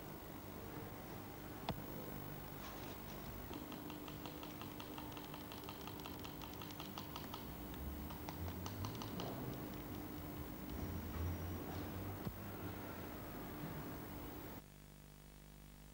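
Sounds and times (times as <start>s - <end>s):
faint steady hum: 0.0s - 15.9s
rapid light clicks: 3.2s - 11.2s.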